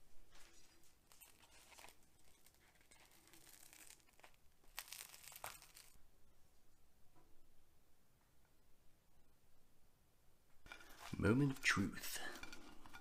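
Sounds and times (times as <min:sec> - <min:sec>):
crinkling and rustling of food wrapping: 0:00.1 - 0:06.0, 0:10.6 - 0:13.0.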